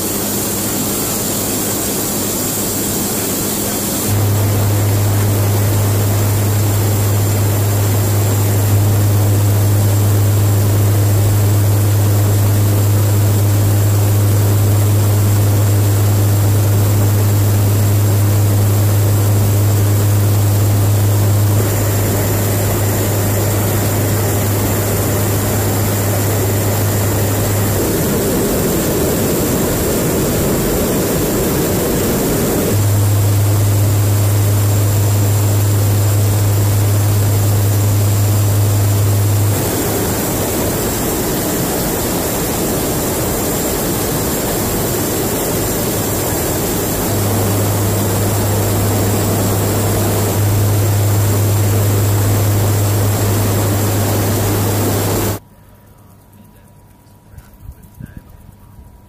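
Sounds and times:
aircraft engine drone: 0.0 - 55.4
rough rushing noise: 3.3 - 55.4.

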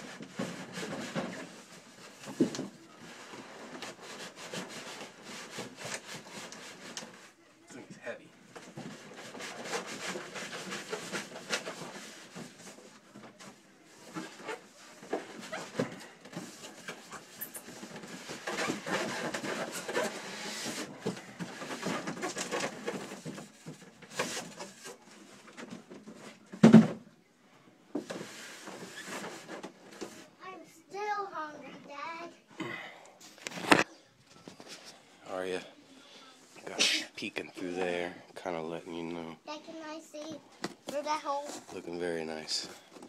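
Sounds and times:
cardboard and foam rubbing: 0.0 - 7.4, 8.6 - 26.5, 28.0 - 31.5.

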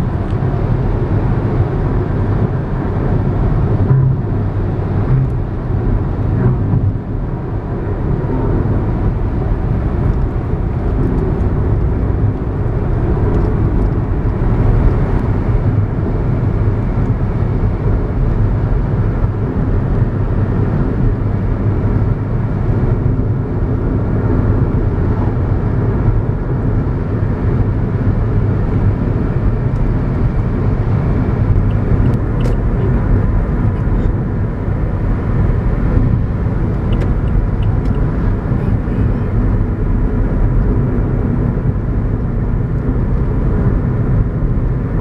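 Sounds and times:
car cabin road rumble: 0.0 - 45.0.

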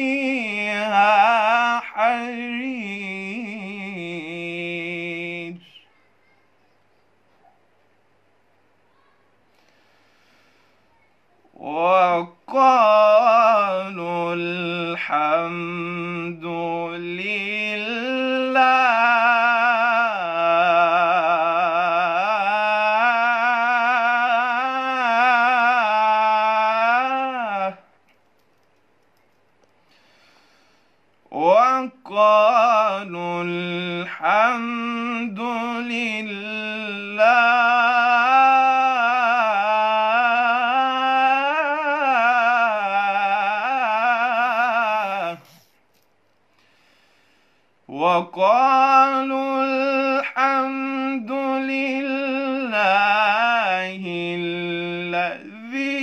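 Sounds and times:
man reciting melodic chant: 0.0 - 5.8, 11.5 - 27.9, 31.2 - 45.6, 47.9 - 56.0.

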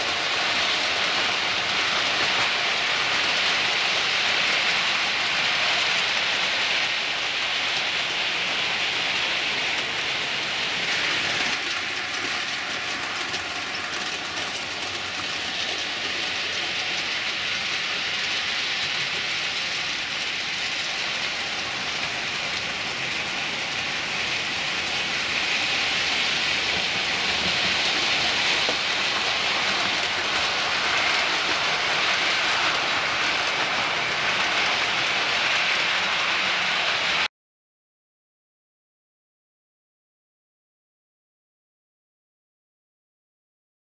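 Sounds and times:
model train running on track: 0.0 - 37.3.

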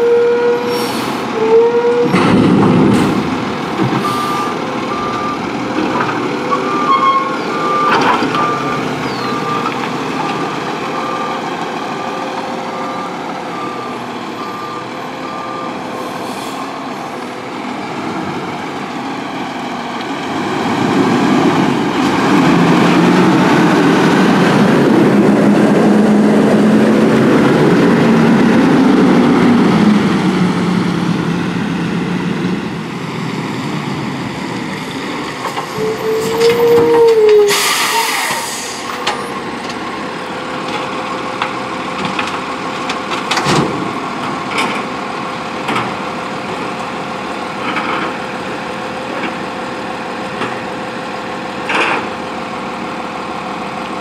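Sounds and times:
diesel truck engine running: 2.1 - 36.8, 38.4 - 54.0
brake squeal: 4.0 - 5.4, 6.4 - 11.4, 35.5 - 39.4.

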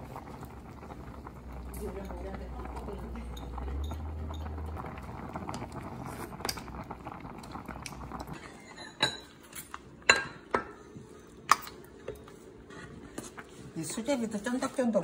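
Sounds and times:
soup bubbling in pot: 0.0 - 13.4.

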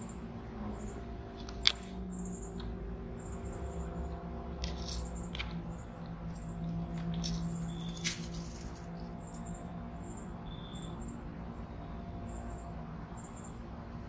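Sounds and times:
low hum: 0.0 - 14.0
faint high chirps: 10.4 - 11.2.

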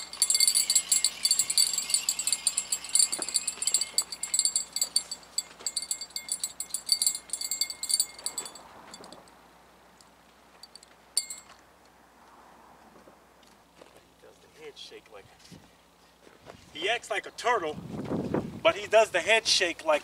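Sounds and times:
fishing reel clicking: 0.0 - 8.5
high metallic ringing: 0.0 - 9.4, 10.6 - 11.6.

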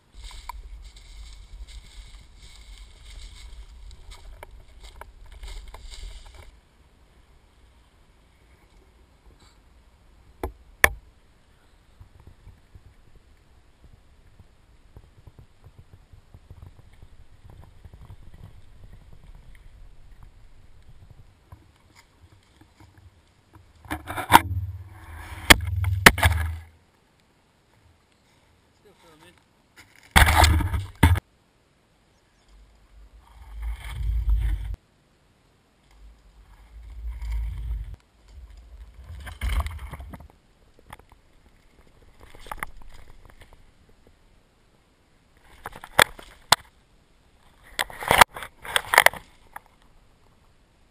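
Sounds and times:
footsteps on leaves: 0.0 - 6.6
bike rolling over dry leaves: 0.0 - 6.7, 32.6 - 34.8, 35.8 - 44.1.

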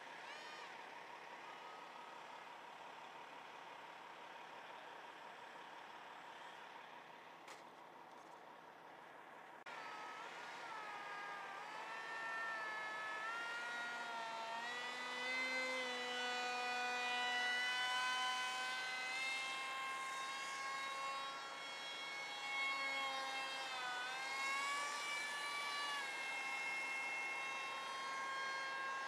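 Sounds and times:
model jet whining in flight: 9.7 - 29.0.

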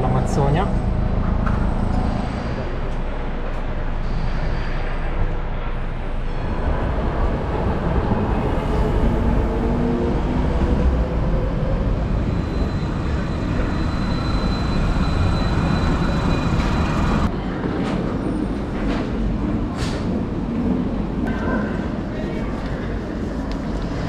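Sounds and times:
street noise: 0.0 - 24.0
tram wheels rumbling on rails: 0.0 - 24.0.

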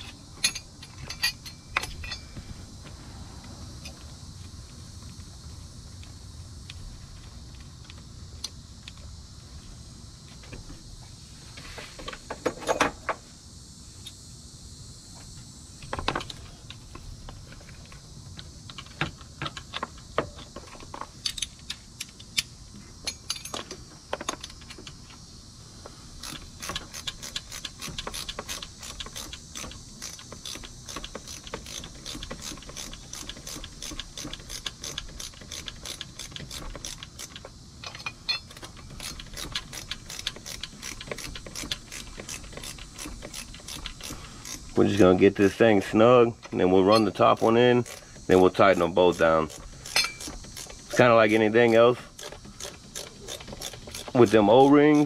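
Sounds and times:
metallic clinks and knocks of tools: 0.0 - 2.5, 18.7 - 25.0, 26.2 - 44.7, 46.9 - 48.0, 49.1 - 51.0
socket ratchet clicking: 26.2 - 44.8, 47.0 - 48.3, 49.1 - 51.0, 51.7 - 55.0.

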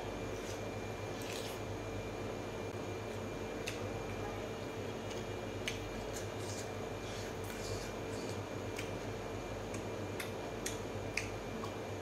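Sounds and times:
steady low hum: 0.0 - 12.0
soft chewing clicks: 3.1 - 3.9, 5.0 - 6.7, 7.4 - 11.8.

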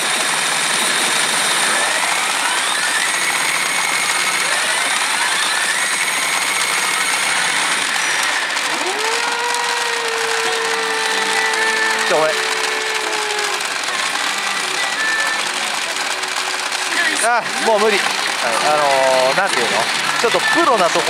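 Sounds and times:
electronic machine effects: 0.0 - 21.0
rattle of steel balls: 0.1 - 21.0
rising held tone: 8.7 - 13.8.

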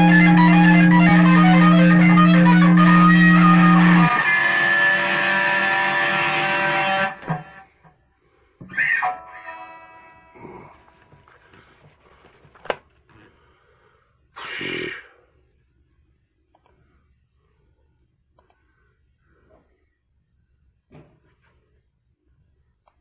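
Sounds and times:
electric guitar chord ringing: 0.0 - 7.7, 8.7 - 11.0.

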